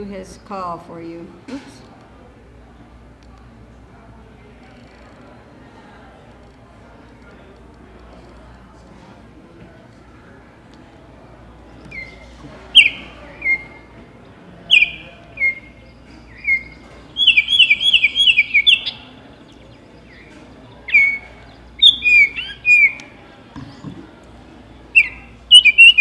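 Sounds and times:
recorded bird song from speaker: 11.5s - 23.5s, 24.6s - 26.0s.

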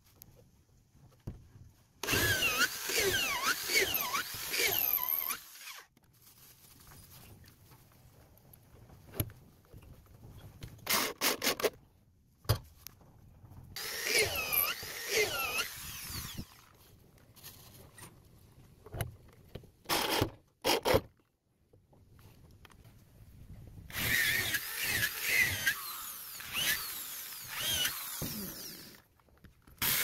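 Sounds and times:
electric drill driving screws: 2.0s - 5.9s, 10.9s - 11.7s, 13.8s - 16.7s, 23.9s - 29.0s, 29.8s - 30.0s
drill squeal: 13.8s - 16.5s.

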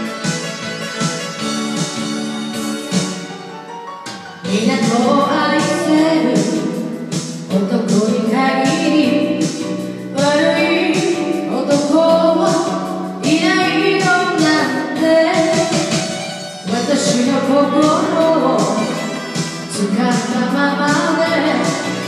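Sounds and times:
recorded backing track: 0.0s - 22.0s
person singing into microphone: 4.4s - 22.0s.

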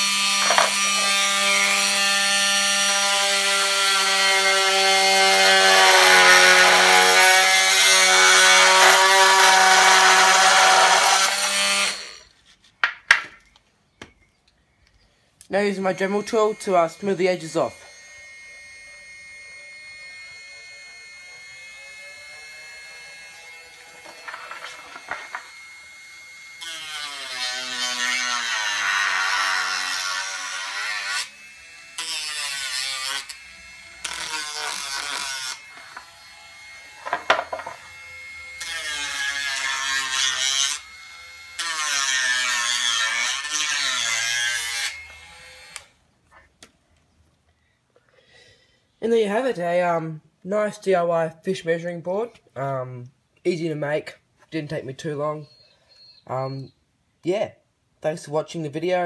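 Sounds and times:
rotary tool grinding plastic: 0.0s - 12.8s, 15.6s - 25.7s, 26.6s - 40.9s.

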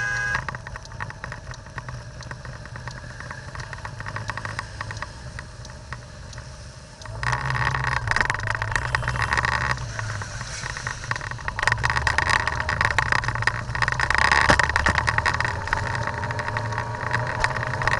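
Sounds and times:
car engine hum: 0.0s - 17.9s
rain hitting car windshield: 0.0s - 17.9s
tyres on wet road: 0.0s - 17.9s.

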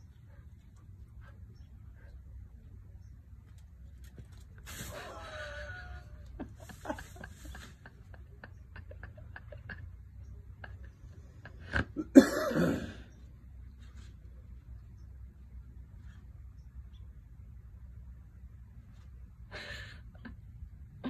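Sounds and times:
soft clicks and rustles: 3.4s - 4.9s
person coughing: 11.9s - 13.0s.

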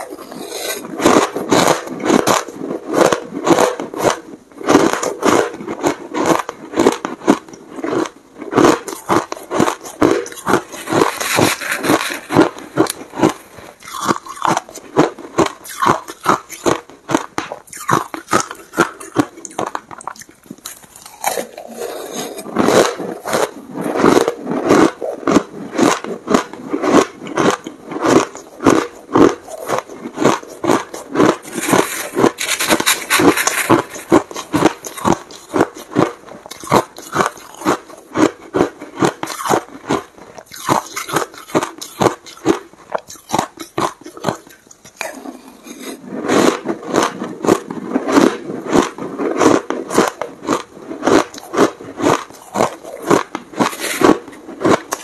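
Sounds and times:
ice being chewed: 0.0s - 55.0s.

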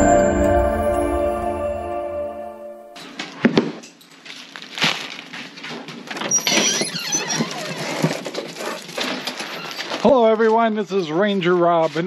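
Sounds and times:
crinkling and crackling: 3.0s - 12.0s
screen door squeak: 6.2s - 10.1s.

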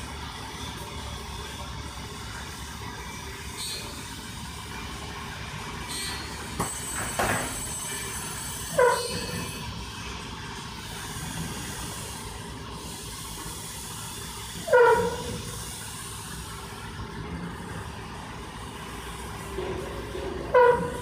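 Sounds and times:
short falling squeal: 8.7s - 9.6s.

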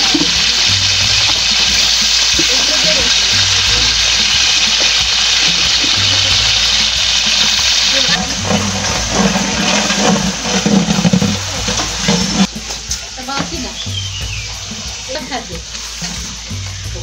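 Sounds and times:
onions sizzling in hot oil: 0.0s - 17.0s
metal spatula scraping pot: 5.6s - 13.6s.

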